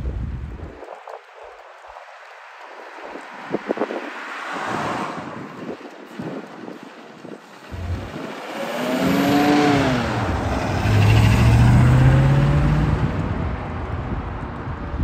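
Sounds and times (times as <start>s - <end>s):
race car engine accelerating away: 7.7s - 13.7s.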